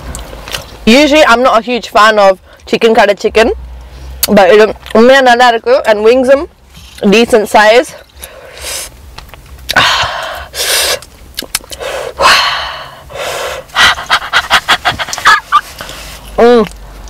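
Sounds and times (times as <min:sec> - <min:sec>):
woman panting and blowing: 0:08.2 - 0:08.9, 0:09.7 - 0:11.1, 0:11.8 - 0:16.2.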